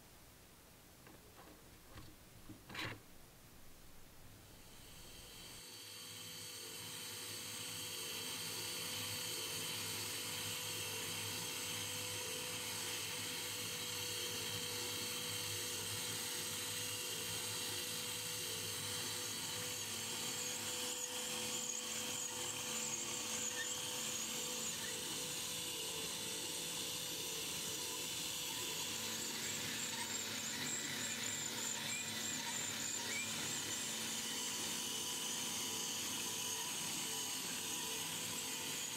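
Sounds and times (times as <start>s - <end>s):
model engine high whir: 4.5s - 38.9s.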